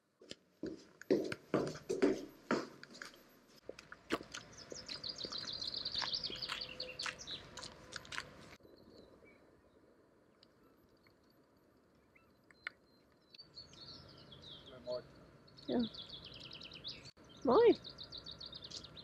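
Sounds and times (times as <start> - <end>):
footsteps on stairs with echo: 0.2 - 3.2
footsteps on a forest path: 0.2 - 8.6
songbird trilling: 4.4 - 7.7, 13.4 - 19.0.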